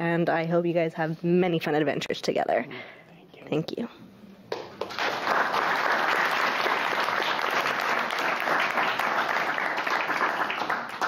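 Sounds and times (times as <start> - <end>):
crowd clapping: 4.5 - 11.0.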